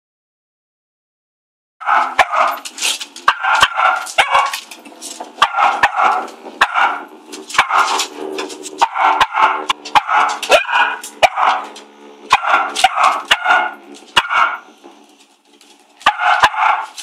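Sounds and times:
dogs barking: 1.8s - 2.6s, 3.2s - 14.8s, 16.0s - 17.0s
sharp clicks and knocks: 1.9s - 17.0s.

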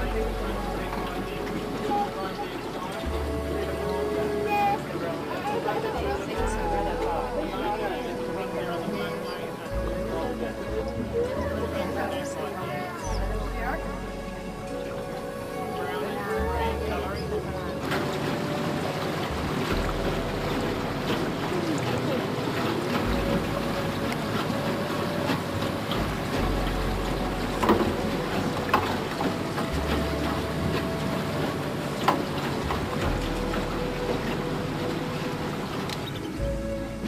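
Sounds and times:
boat motor running: 0.0s - 37.0s.

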